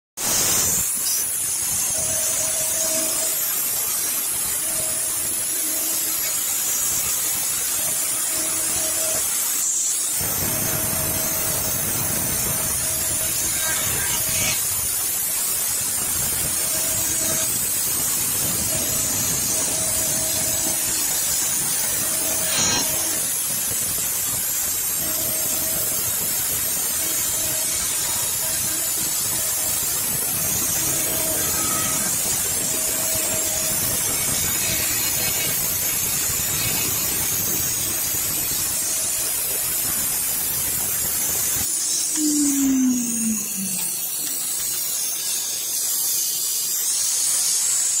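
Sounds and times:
router spindle cutting wood: 0:24.7 - 0:39.4
falling tone: 0:42.0 - 0:44.3.

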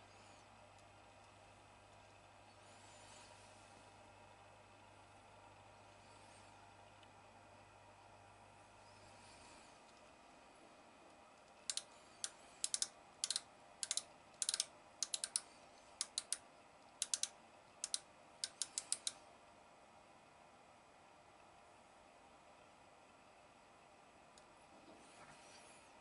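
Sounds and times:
micrometer ratchet clicking: 0:11.7 - 0:15.4, 0:16.0 - 0:16.4, 0:17.0 - 0:19.2.

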